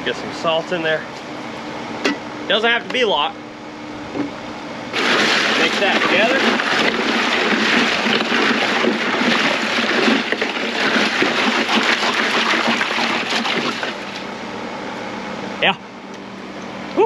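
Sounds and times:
water sloshing and splashing: 4.9 - 14.3
ice chunks knocking together: 5.0 - 14.0.

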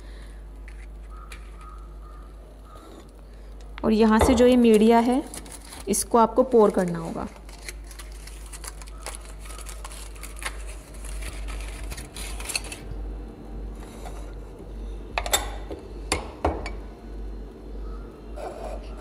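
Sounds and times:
rustling and scraping: 4.3 - 12.9, 13.7 - 14.6.

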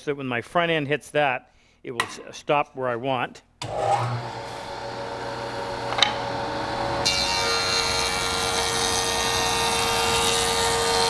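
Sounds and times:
jointer cutting wood: 3.6 - 11.0
jointer machine hum: 3.6 - 11.0
sharp click: 5.9 - 6.2.

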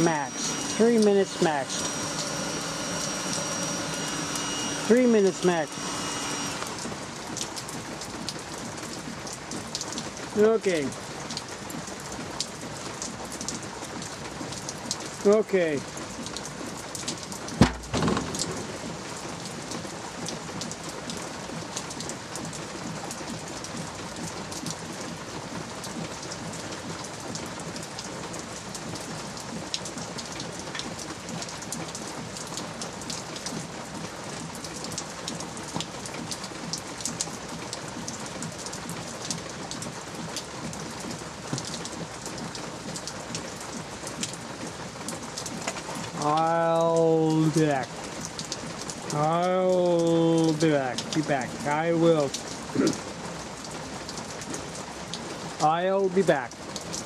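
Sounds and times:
drips ticking: 0.0 - 19.4
light rain: 0.0 - 57.0.

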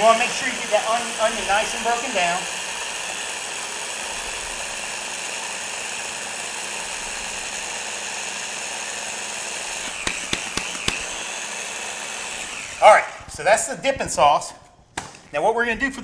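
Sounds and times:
electric blender running: 0.0 - 13.4
sharp knocks: 10.0 - 11.0.

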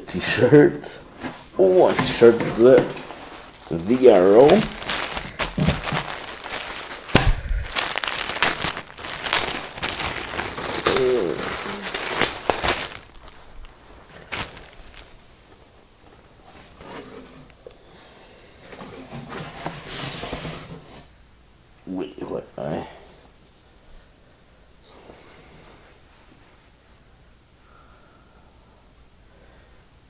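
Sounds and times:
shirt handling: 1.1 - 15.3
plastic bag crinkling: 1.4 - 15.4.

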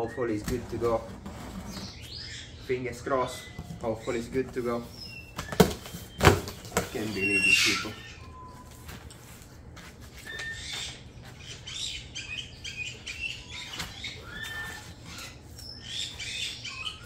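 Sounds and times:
foam squeaking against cardboard: 0.8 - 2.3, 3.3 - 8.6.

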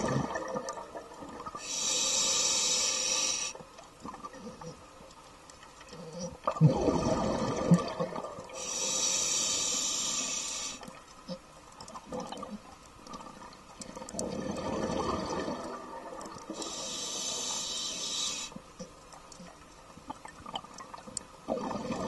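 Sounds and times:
exhaled bubbles burbling: 0.0 - 1.6, 6.4 - 8.6, 12.1 - 16.6, 21.5 - 22.0
regulator hissing inhalation: 1.6 - 3.6, 8.6 - 10.9, 16.6 - 18.6.

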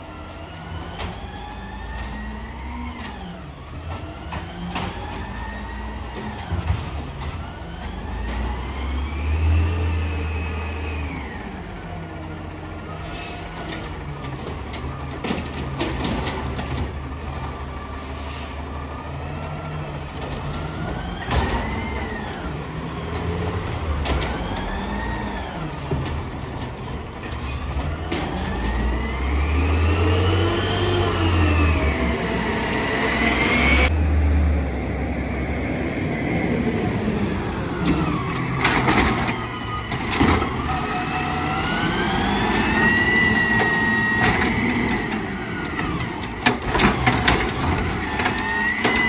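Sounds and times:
air brakes hissing: 12.6 - 13.5, 17.9 - 18.6
garbage truck engine revving: 27.7 - 49.0
cart banging against hopper: 41.9 - 49.0.

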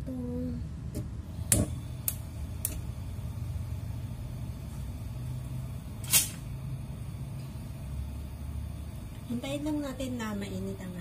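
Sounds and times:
kitchen background hum: 0.0 - 11.0.

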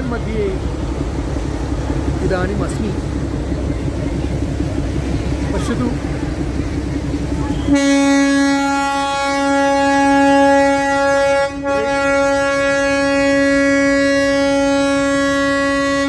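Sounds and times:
locomotive horn blast: 7.0 - 16.0.

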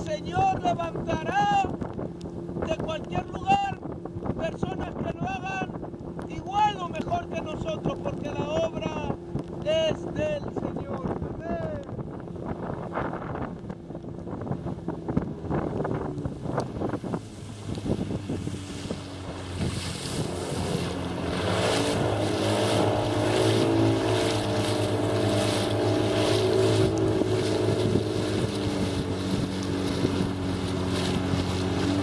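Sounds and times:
outboard motor drone: 0.0 - 32.0
water rushing past hull: 0.0 - 32.0
wind buffeting microphone: 0.0 - 32.0.

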